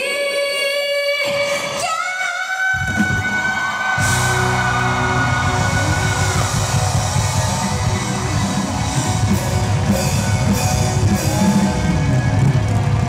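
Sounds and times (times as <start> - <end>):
live rock band music: 3.9 - 13.0.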